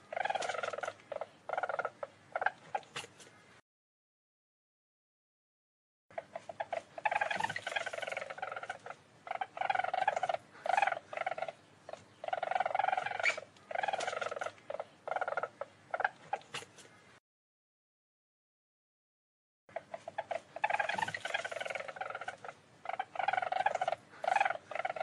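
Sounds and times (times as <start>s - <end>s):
weasel chattering trills: 0.0s - 3.2s, 6.1s - 16.9s, 19.7s - 25.0s.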